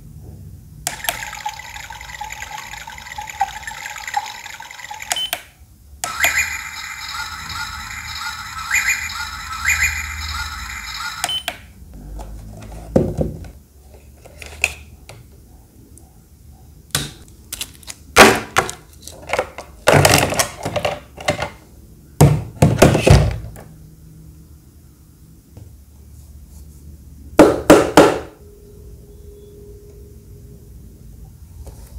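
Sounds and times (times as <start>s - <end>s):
electronic beeping tune: 6.1s - 11.5s
knocks and thuds of handling: 12.9s - 13.6s.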